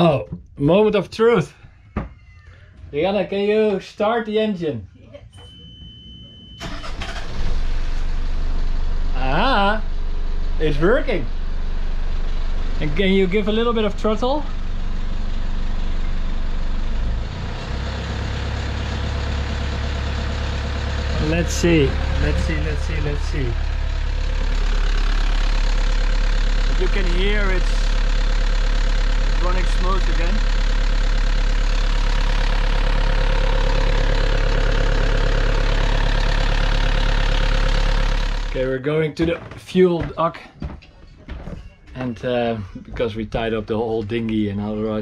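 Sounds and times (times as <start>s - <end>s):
diesel engine running: 6.6s - 38.8s.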